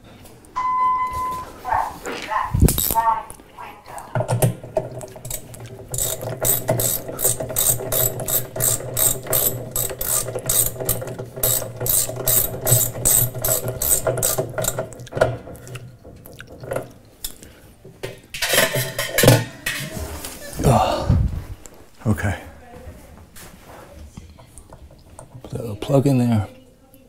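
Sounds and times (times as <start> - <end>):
ratchet wrench clicking: 2.7 - 3.0, 5.3 - 14.8.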